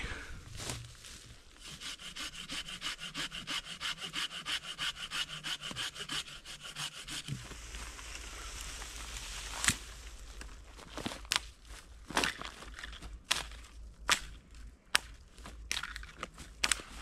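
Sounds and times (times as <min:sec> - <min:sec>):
hand saw cutting green wood: 0:01.6 - 0:07.4.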